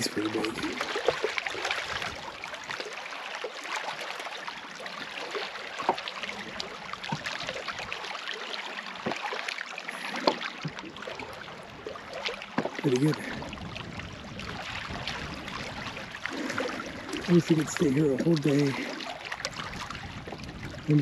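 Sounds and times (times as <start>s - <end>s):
small waves lapping on pebbles: 0.0s - 21.0s.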